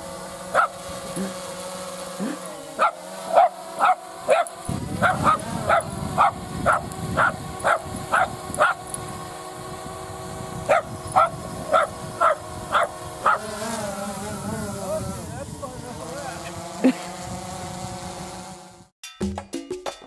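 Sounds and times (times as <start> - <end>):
drone rotors whirring: 0.0 - 18.9
small dog barking: 0.5 - 0.8, 2.8 - 8.8, 10.7 - 13.5.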